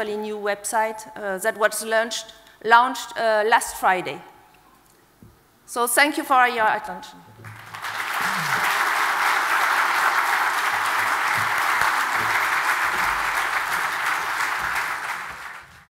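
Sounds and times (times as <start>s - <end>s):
audience applauding: 7.4s - 15.9s.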